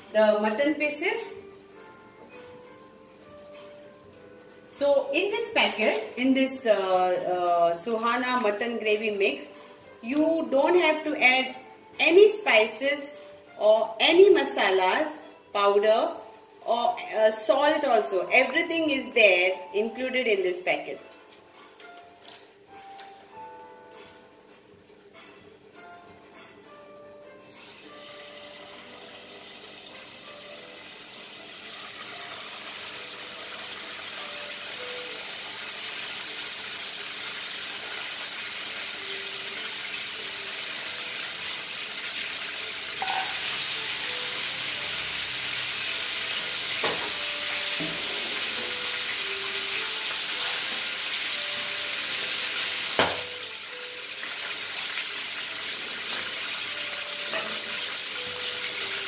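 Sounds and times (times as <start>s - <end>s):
meat sizzling in a pan: 27.5s - 59.0s.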